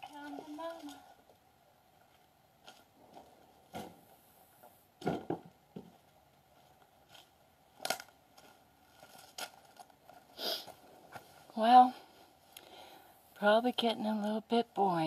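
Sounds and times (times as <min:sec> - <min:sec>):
quiet thumps and rustles: 0:02.0 - 0:07.2.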